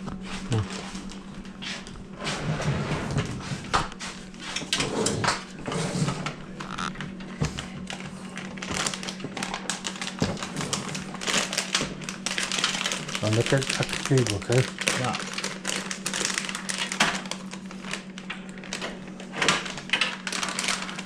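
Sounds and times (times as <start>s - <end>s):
steady low hum: 0.0s - 21.0s
plastic packaging rustling: 6.6s - 21.0s.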